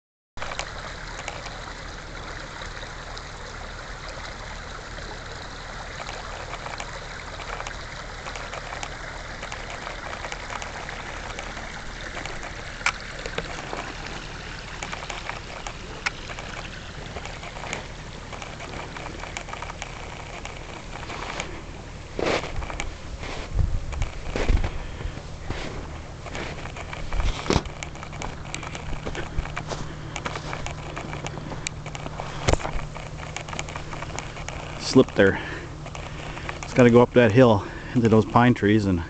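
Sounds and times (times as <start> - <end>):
brook babbling over rocks: 0.4 - 39.0
sharp clicks: 6.0 - 21.6, 25.9 - 37.0.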